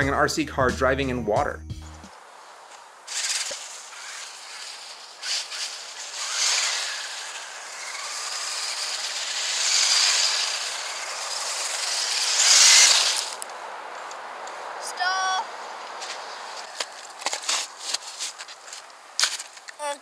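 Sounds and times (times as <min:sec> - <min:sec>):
tyres spraying through slush: 0:03.1 - 0:13.5.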